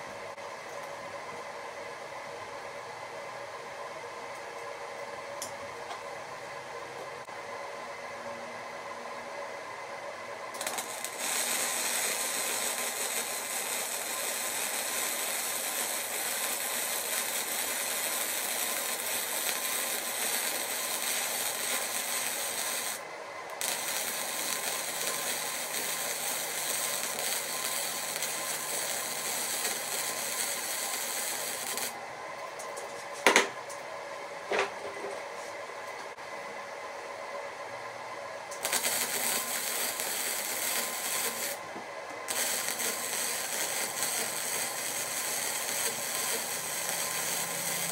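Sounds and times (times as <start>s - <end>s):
welding arc crackling: 10.5s - 32.0s, 38.5s - 41.6s, 42.2s - 47.9s.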